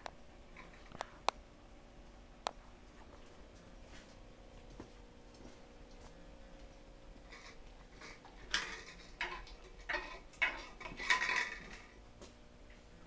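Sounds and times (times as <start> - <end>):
hard objects clattering: 7.3 - 12.0.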